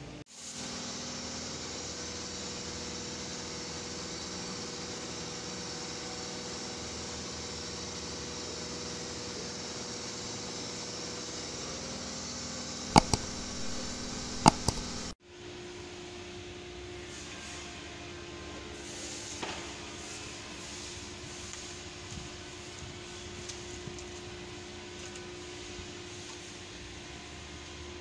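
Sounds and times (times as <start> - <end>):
sharp knocks of metal parts: 12.9 - 15.2.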